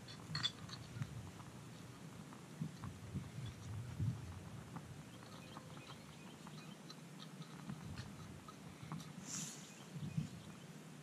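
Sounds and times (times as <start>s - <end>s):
wind rumble on microphone: 0.0s - 6.6s, 7.5s - 9.1s, 9.8s - 10.6s
fire crackling: 0.0s - 9.6s
soft hiss: 6.9s - 11.0s.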